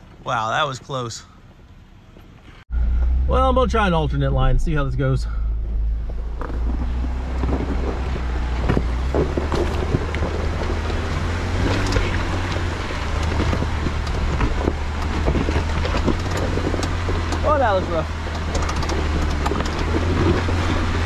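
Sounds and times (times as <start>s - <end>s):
gravel crackling under tyres: 0.0s - 4.4s, 5.2s - 21.0s
engine running at low revs: 2.5s - 21.0s
wind noise on microphone: 5.5s - 21.0s.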